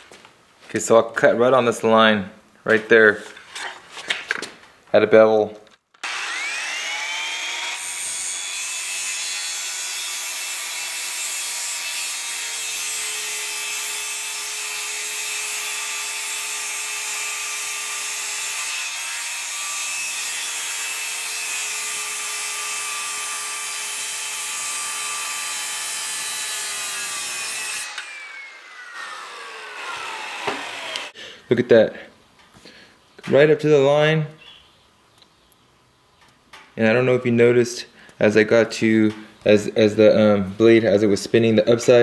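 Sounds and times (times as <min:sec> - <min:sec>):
saw blade winding down: 0:06.0 - 0:13.0, 0:23.6 - 0:31.2
circular saw cutting: 0:06.0 - 0:31.2.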